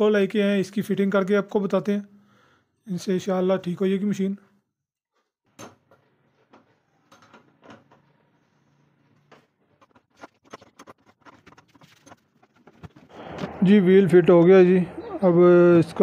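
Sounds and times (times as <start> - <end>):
hands handling plastic parts: 5.1 - 13.5.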